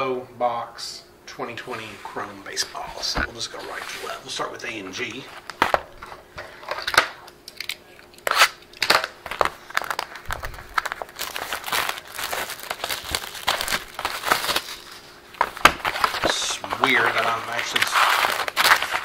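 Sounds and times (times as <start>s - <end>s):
plastic shrink-wrap crinkling and tearing: 8.2s - 19.0s.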